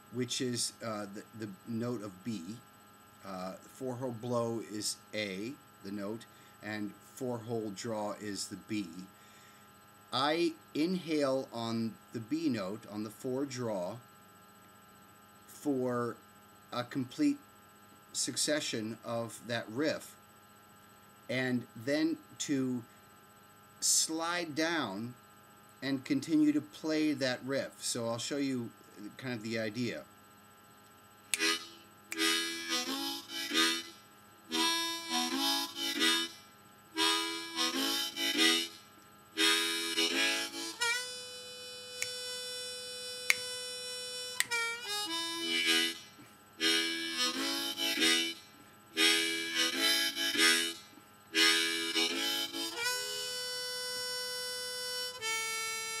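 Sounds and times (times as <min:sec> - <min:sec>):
harmonica chugging rhythm: 0:31.3 - 0:56.0
harmonica held note: 0:31.3 - 0:56.0.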